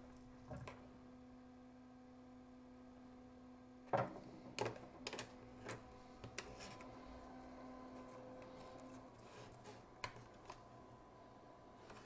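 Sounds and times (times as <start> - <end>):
small fan humming: 0.0 - 12.0.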